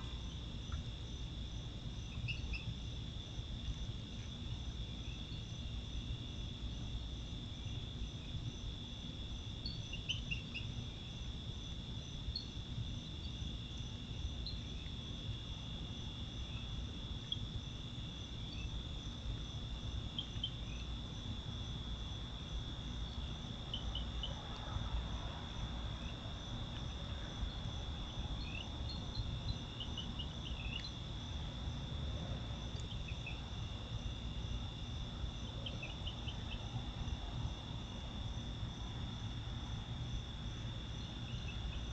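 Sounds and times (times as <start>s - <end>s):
insects trilling: 0.0s - 41.9s
low steady rumble: 0.0s - 41.9s
short insect chirps: 27.5s - 31.0s.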